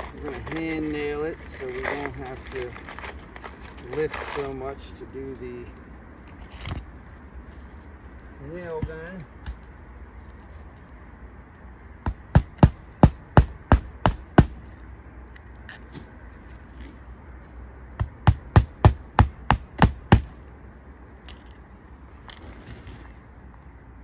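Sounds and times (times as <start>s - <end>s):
hammer striking roofing nails: 12.0s - 14.6s, 18.0s - 20.4s.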